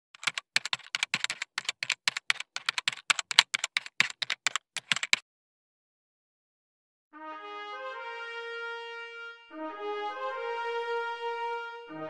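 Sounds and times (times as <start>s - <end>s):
keyboard keystroke clicks: 0.2s - 5.2s.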